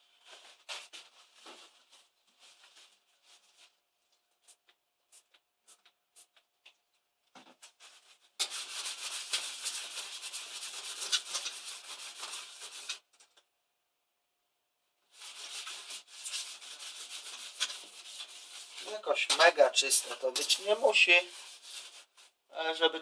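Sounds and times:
cloth scrubbing metal plate: 0:08.4 - 0:13.0, 0:15.1 - 0:22.3.

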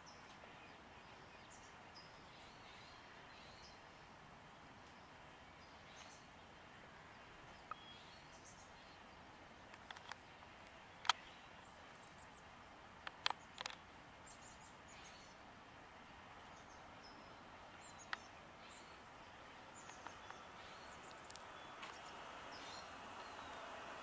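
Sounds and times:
small birds chirping: 0:00.0 - 0:24.0
sharp clicks: 0:09.7 - 0:11.4, 0:13.0 - 0:13.8, 0:18.0 - 0:18.3, 0:19.8 - 0:22.1.

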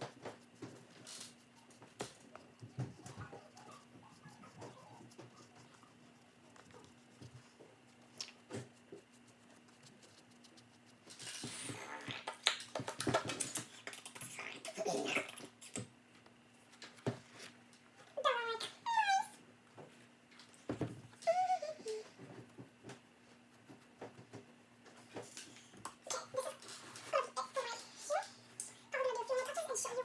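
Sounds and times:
paintbrush tapping and scratching: 0:00.0 - 0:11.7, 0:22.2 - 0:27.8.

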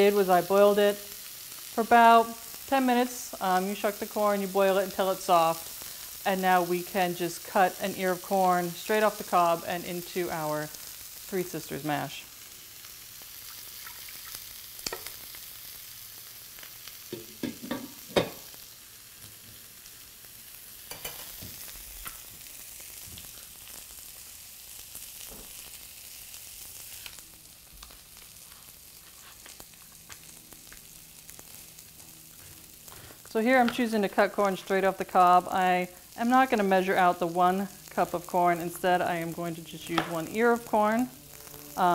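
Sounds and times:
vegetables sizzling in a frying pan: 0:00.0 - 0:41.9
cooking utensils clicking and knocking: 0:17.1 - 0:18.5, 0:20.9 - 0:21.5.

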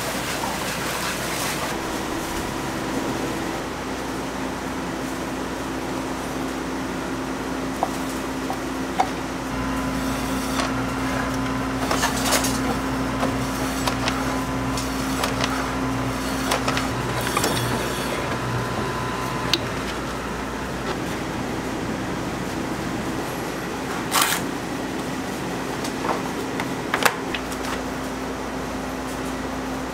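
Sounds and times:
steady kitchen hum: 0:00.0 - 0:29.9
meat slicer motor hum: 0:01.6 - 0:05.2, 0:05.9 - 0:25.1.

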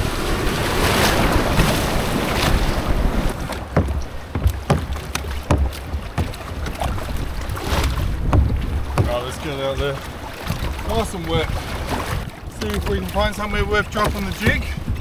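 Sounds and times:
water splashing: 0:00.0 - 0:15.0
wind buffeting microphone: 0:00.0 - 0:15.0
sharp slaps and knocks: 0:03.5 - 0:07.0, 0:07.6 - 0:09.4, 0:14.0 - 0:14.6.

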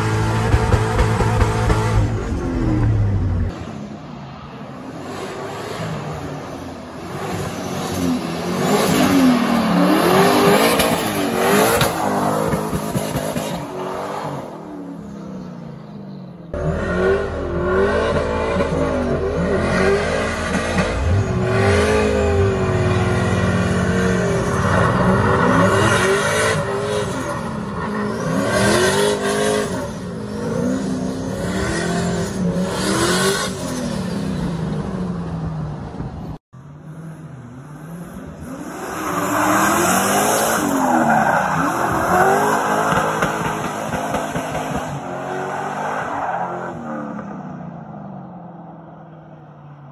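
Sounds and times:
pickup engine revving: 0:16.6 - 0:27.3
tyres spinning and squealing: 0:38.9 - 0:46.9.

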